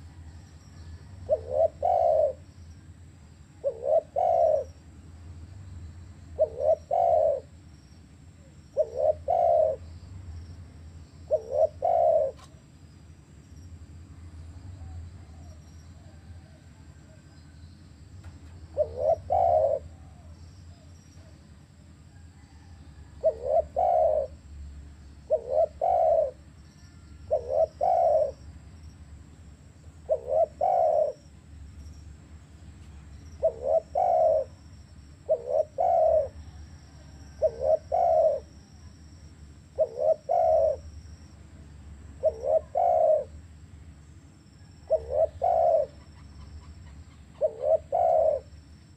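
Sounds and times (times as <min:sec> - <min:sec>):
dove cooing: 0:00.0 - 0:02.5, 0:03.5 - 0:04.8, 0:06.3 - 0:07.6, 0:08.7 - 0:10.0, 0:11.2 - 0:12.6, 0:18.6 - 0:28.5, 0:30.0 - 0:31.3, 0:33.2 - 0:39.0, 0:39.6 - 0:41.0, 0:42.2 - 0:43.4, 0:44.6 - 0:48.7.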